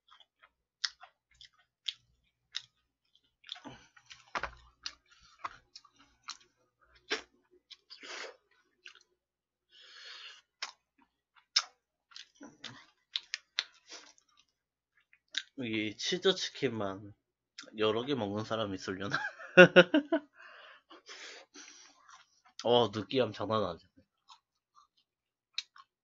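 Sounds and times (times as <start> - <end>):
person chewing and biting: 0.0 - 9.1, 10.3 - 15.5, 24.2 - 26.0
crackly smacking noises: 0.2 - 7.9.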